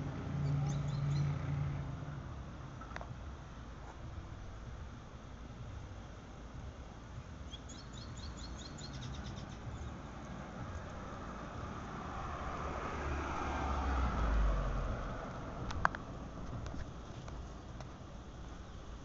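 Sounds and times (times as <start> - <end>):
car driving past: 0.0 - 2.4, 9.8 - 16.5
high bird chirps: 0.4 - 1.4, 7.5 - 10.0.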